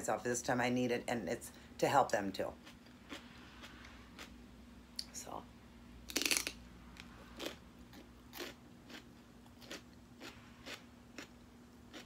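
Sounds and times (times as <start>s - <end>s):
crunchy chewing: 2.6s - 4.4s, 6.1s - 12.0s
celery bite crunch: 6.1s - 6.6s, 7.4s - 12.0s.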